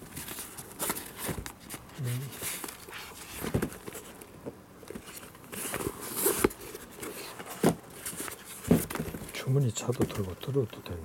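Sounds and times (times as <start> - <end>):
light knocks and bumps: 7.5 - 10.6.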